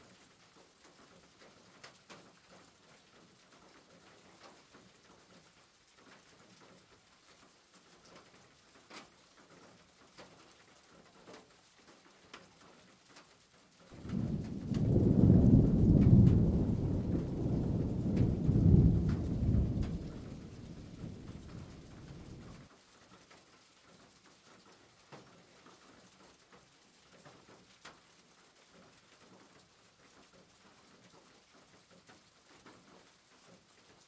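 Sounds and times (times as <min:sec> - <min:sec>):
loud low rumble: 0:14.0 - 0:22.6.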